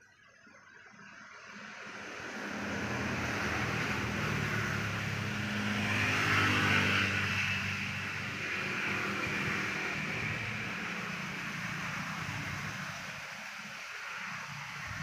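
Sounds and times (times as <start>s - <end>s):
vehicle engine passing: 2.3s - 12.7s.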